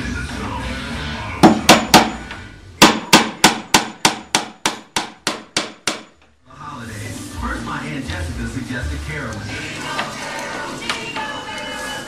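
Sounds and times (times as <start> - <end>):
hammer striking wooden beam: 1.4 - 2.2, 2.8 - 6.2.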